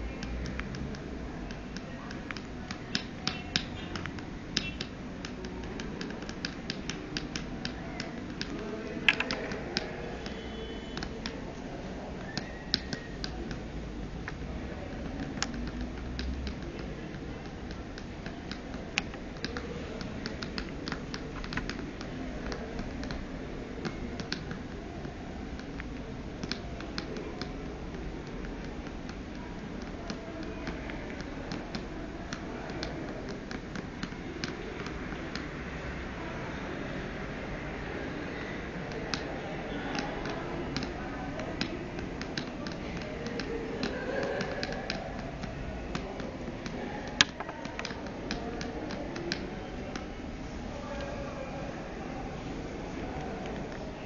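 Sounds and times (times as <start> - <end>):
low background noise: 0.0 - 54.0
mobile phone button clicks: 1.7 - 11.4.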